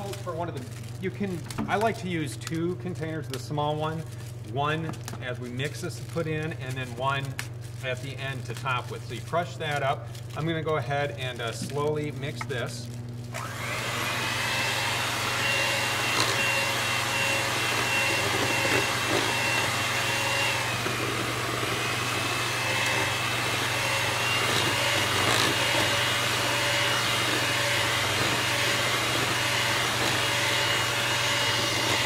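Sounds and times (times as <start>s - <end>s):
electric hand mixer whirring: 0.0s - 1.1s, 11.7s - 32.0s.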